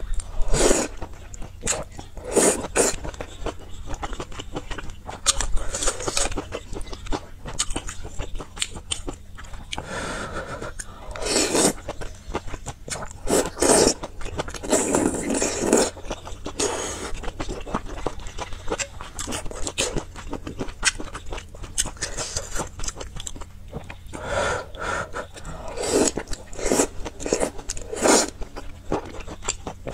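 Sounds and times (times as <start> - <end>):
wet chewing and mouth clicks: 0.0 - 9.9, 10.7 - 29.9
slurping noodles: 0.4 - 1.0, 10.2 - 11.9, 13.2 - 14.0, 14.6 - 17.2, 24.8 - 28.4.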